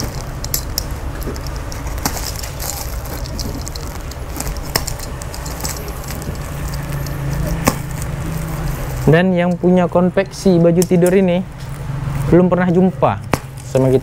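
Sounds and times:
plastic sack rustling: 0.0s - 9.2s
stitches snapping: 0.0s - 9.7s
steady low hum: 0.0s - 14.0s.

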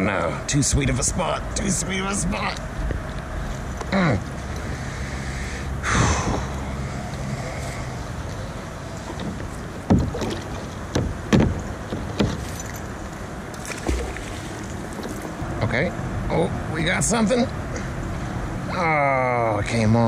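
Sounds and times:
water splashing around kayak: 8.0s - 12.9s, 13.5s - 15.6s.

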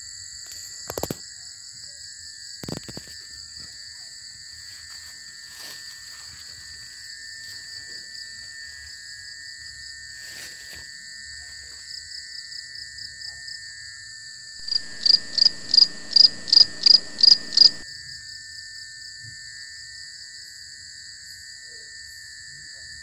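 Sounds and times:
crickets and insects chirring: 14.6s - 17.8s
loud pulsed animal call: 14.6s - 17.8s.

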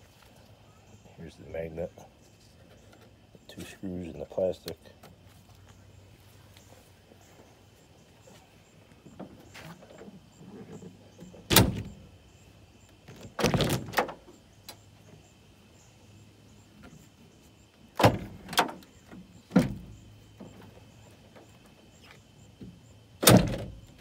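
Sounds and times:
pickup tailgate clunking: 10.6s - 12.0s, 18.0s - 20.8s, 23.2s - 23.8s.

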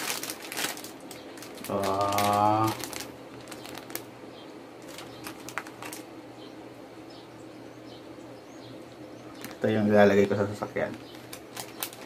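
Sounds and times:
plastic bag rustling: 0.0s - 4.2s, 4.8s - 6.2s, 9.3s - 12.0s.

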